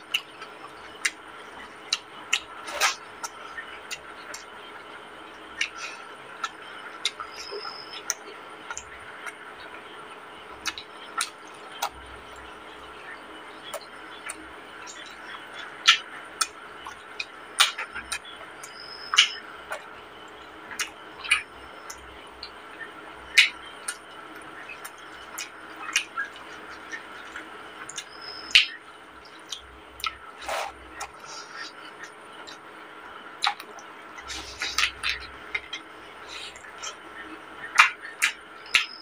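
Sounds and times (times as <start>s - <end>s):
steady background hum: 0.0s - 39.0s
wet mouth chewing smacks: 1.9s - 4.4s, 5.6s - 9.4s, 29.4s - 32.6s, 33.4s - 37.0s
fingers squishing rice: 23.3s - 39.0s.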